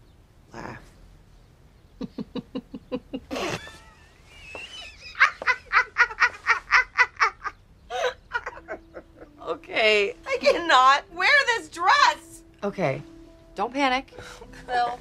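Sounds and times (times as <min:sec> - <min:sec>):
person laughing: 0:02.0 - 0:09.4.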